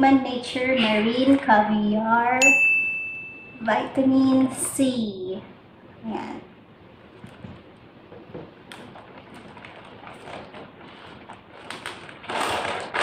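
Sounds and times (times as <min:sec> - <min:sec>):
plastic bag crinkling: 0:08.6 - 0:13.0.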